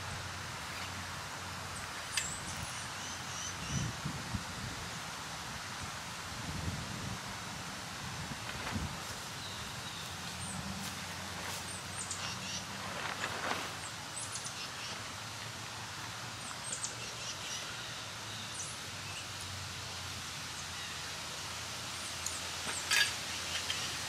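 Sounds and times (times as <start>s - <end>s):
outdoor hiss: 0.0s - 24.0s
small birds chirping: 1.7s - 4.0s, 9.3s - 15.2s, 16.3s - 19.5s, 21.9s - 24.0s.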